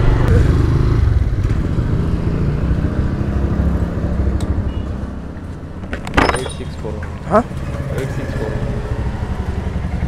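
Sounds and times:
road and wind noise: 0:00.0 - 0:10.0.

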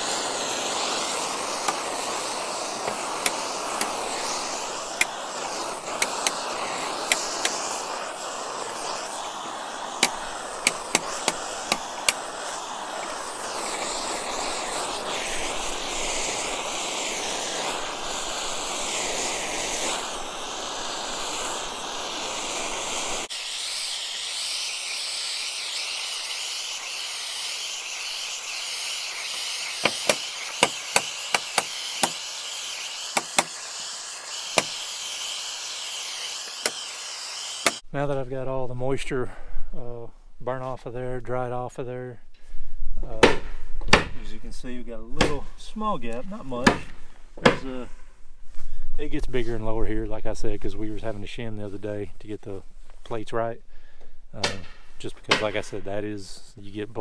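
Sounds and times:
propane torch roaring: 0:00.0 - 0:38.0
sharp clicks and knocks: 0:29.8 - 0:32.2.

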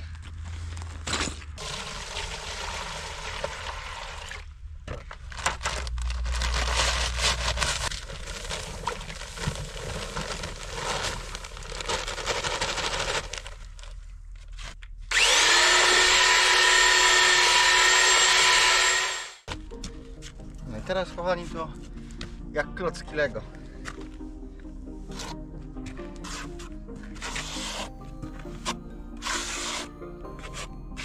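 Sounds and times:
saw rasping through concrete block: 0:15.1 - 0:19.5, 0:27.2 - 0:27.9, 0:29.2 - 0:31.0.

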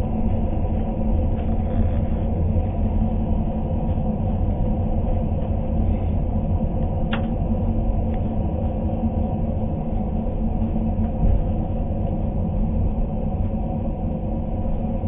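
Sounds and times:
train low rumble: 0:00.0 - 0:15.0.

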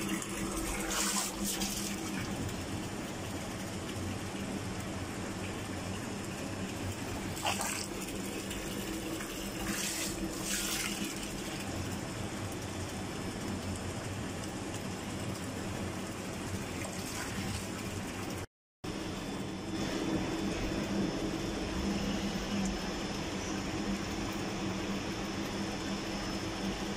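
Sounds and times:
liquid pouring into tank: 0:00.0 - 0:18.5
pump humming: 0:00.0 - 0:26.9
louder splashes: 0:09.2 - 0:11.6.

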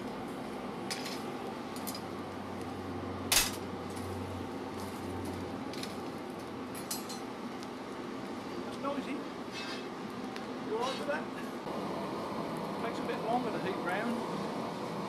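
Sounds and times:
iron bars and tongs clinking: 0:03.3 - 0:03.6, 0:06.8 - 0:07.2.

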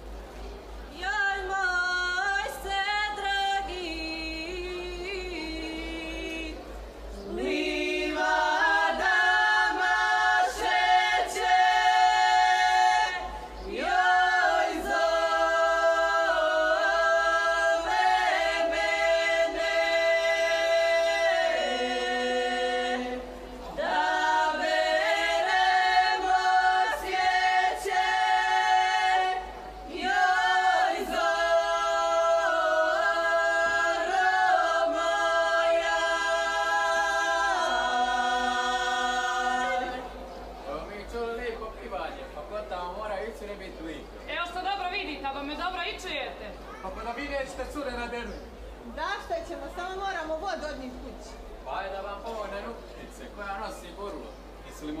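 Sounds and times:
women singing unaccompanied: 0:00.9 - 0:40.3.

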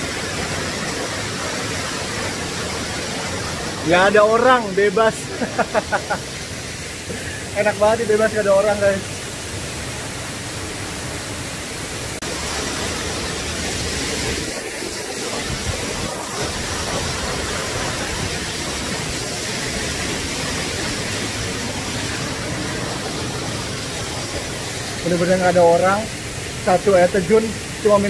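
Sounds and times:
waterfall rushing: 0:00.0 - 0:28.0.

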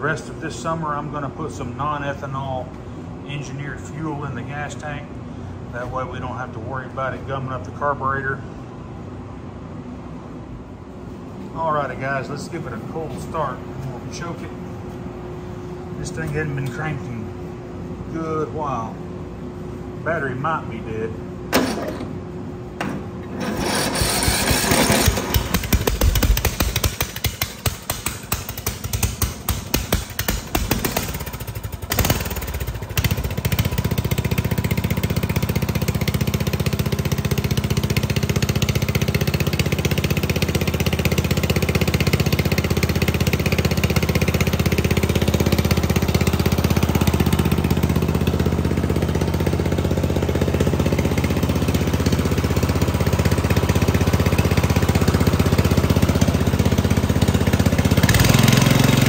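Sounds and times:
electric starter cranking engine: 0:21.5 - 0:22.2, 0:23.2 - 0:29.2, 0:30.0 - 0:39.0, 0:52.0 - 0:59.0
lawn tractor engine running: 0:21.5 - 0:59.0.

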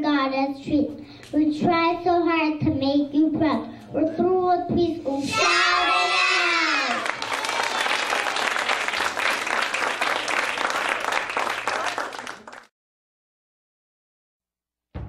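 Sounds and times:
audience clapping: 0:05.9 - 0:12.7.

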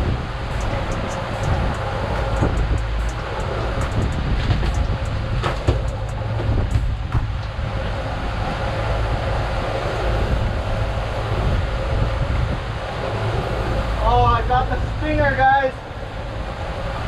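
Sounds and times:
outboard motor running: 0:00.0 - 0:15.2
water noise: 0:00.0 - 0:17.0
wind: 0:00.0 - 0:17.0
sharp clicks: 0:00.5 - 0:07.5.

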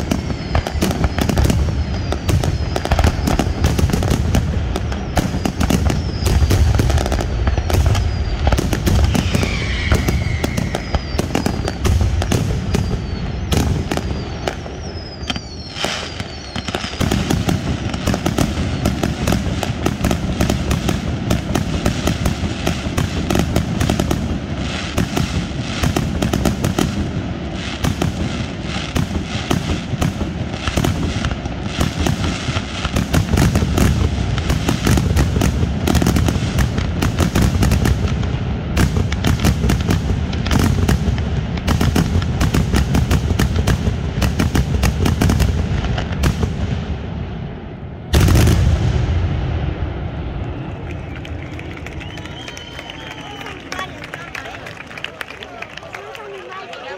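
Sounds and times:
falling firework whistles: 0:00.0 - 0:38.1, 0:48.1 - 0:55.1
fireworks shell bursts and bangs: 0:04.9 - 0:14.2.

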